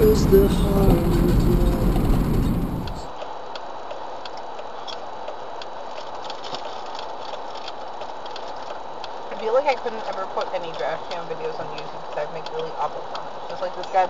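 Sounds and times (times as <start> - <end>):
steady microphone hiss: 0.0 - 3.4.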